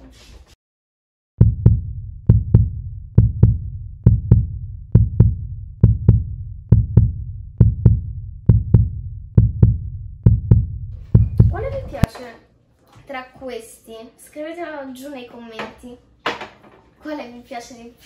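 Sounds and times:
heartbeat-like low thumps: 0:01.4 - 0:12.1.

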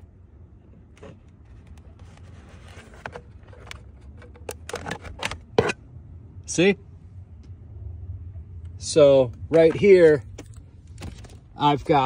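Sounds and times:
steady low hum: 0:00.0 - 0:12.0
plastic clicks and scrapes: 0:00.9 - 0:05.8.

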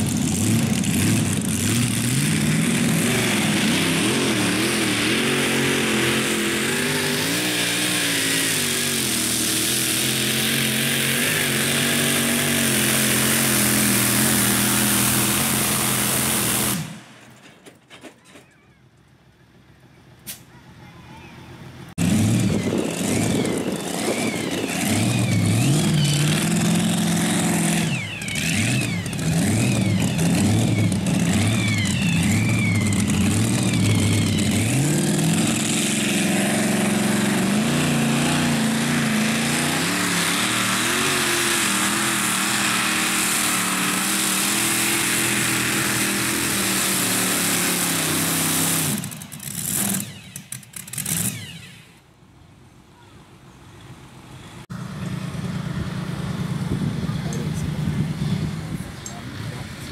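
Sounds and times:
engine revving and sputtering: 0:00.0 - 0:17.1, 0:21.9 - 0:52.0.

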